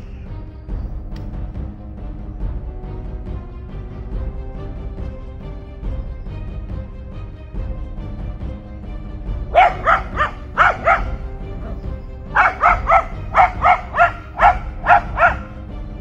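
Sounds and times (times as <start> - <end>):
background music: 0.0 - 16.0
dog barking: 9.5 - 15.6.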